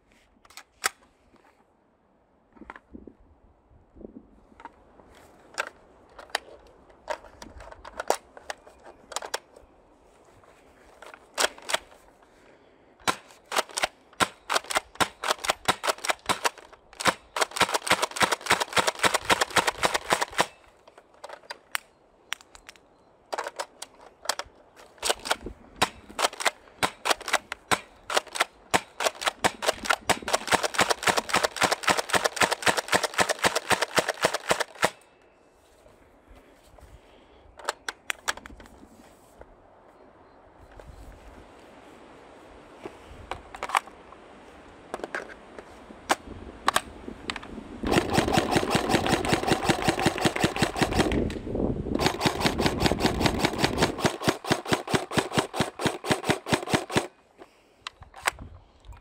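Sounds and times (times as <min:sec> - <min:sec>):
airsoft guns firing: 0:13.0 - 0:20.6, 0:25.0 - 0:35.0, 0:47.9 - 0:51.3, 0:52.0 - 0:57.1.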